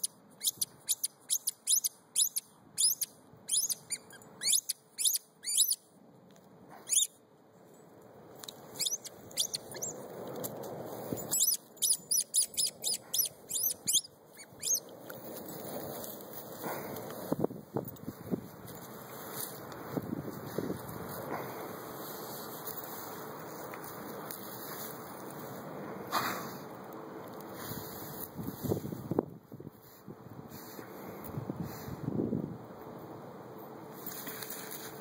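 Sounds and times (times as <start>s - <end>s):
squeaky ball squeaking: 0.4s - 5.8s, 6.9s - 7.1s, 8.8s - 9.9s, 11.2s - 14.8s
rustling noise: 7.6s - 12.0s, 13.8s - 32.1s, 33.9s - 35.0s.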